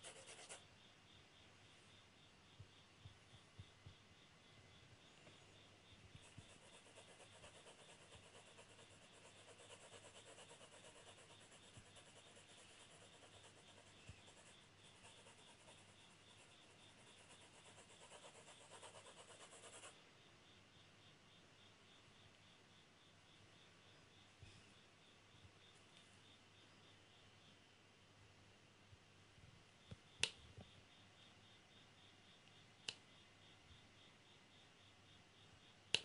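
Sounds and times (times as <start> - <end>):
pencil shading on paper: 0.0 - 0.6, 6.2 - 19.9.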